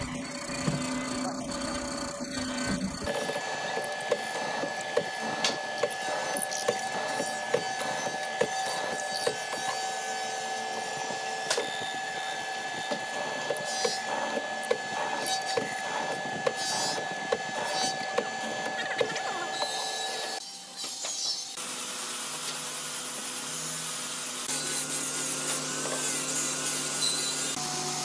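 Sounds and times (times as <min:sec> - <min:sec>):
woodworking machine whining: 0:00.0 - 0:28.0
cutter clicking on wood: 0:03.0 - 0:21.3.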